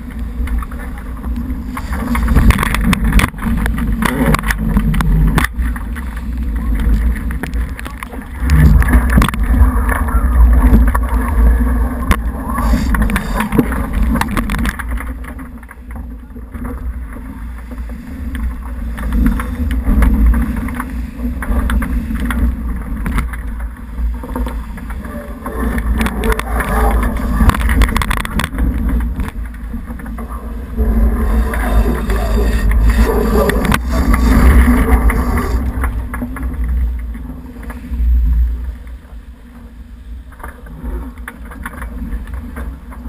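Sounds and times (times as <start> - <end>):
water rushing along hull: 0.0 - 43.0
wind buffeting microphone: 18.3 - 37.6.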